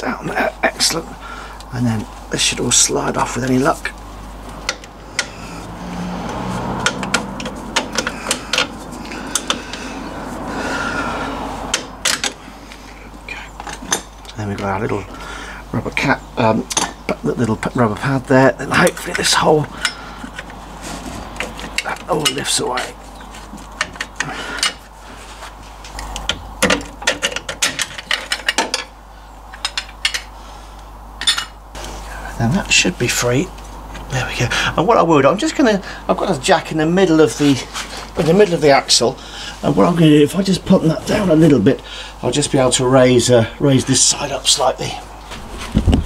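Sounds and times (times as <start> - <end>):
handling rustle: 18.9 - 26.2, 37.2 - 38.9.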